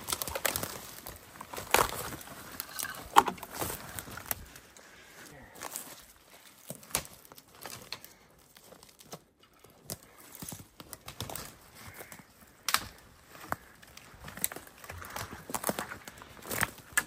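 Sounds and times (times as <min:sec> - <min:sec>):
footsteps crunching through twigs: 0:00.0 - 0:04.7, 0:09.9 - 0:17.0
sticks snapping underfoot: 0:08.8 - 0:11.6, 0:12.6 - 0:17.0.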